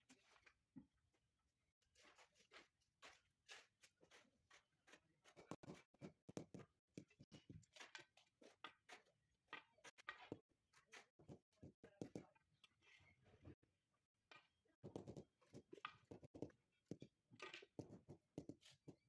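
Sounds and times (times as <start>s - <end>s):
trowel scraping mortar: 2.0s - 6.3s, 7.0s - 11.8s.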